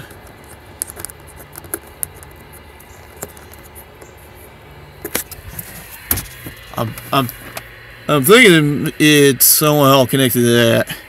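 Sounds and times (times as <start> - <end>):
fingers handling camera: 0.0 - 4.2.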